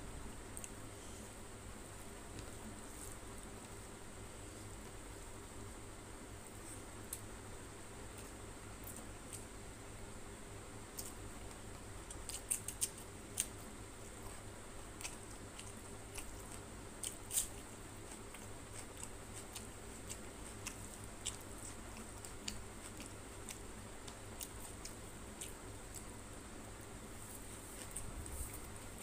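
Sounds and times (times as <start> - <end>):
faint steady hiss: 0.0 - 29.0
wet chewing smacks: 15.0 - 26.2.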